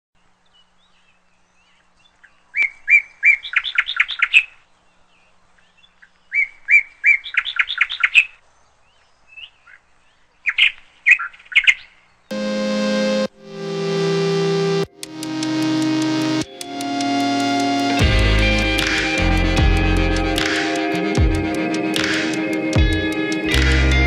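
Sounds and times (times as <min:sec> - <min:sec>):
songbird singing: 0:00.2 - 0:12.4
music: 0:12.3 - 0:24.0.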